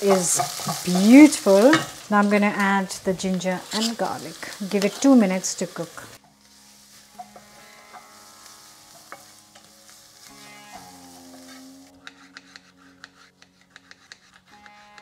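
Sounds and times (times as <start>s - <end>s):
food sizzling in hot oil: 0.0s - 12.2s
soft background music: 6.2s - 15.0s.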